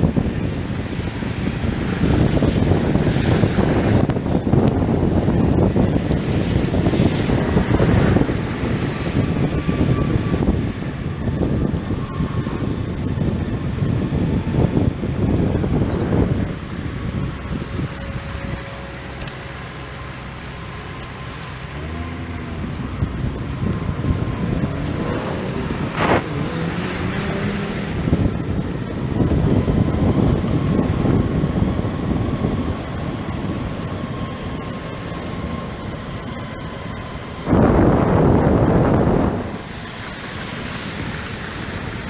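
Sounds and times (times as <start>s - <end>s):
road traffic passing: 0.0s - 42.0s
wind buffeting microphone: 0.0s - 42.0s
loud swish: 24.9s - 27.8s.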